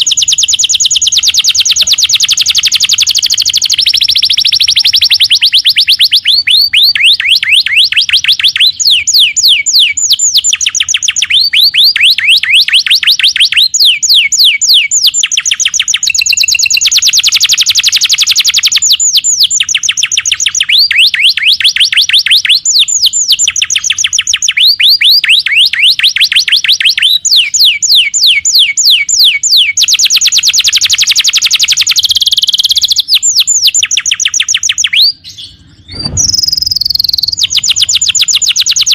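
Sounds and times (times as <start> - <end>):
canary singing trills: 0.0 - 38.9.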